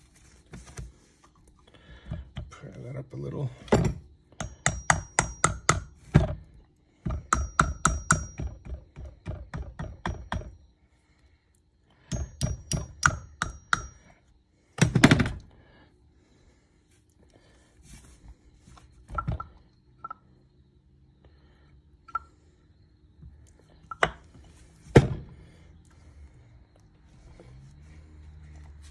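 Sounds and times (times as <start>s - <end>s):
hammer tapping metal pins: 3.7s - 6.3s, 7.0s - 10.6s, 12.1s - 14.1s.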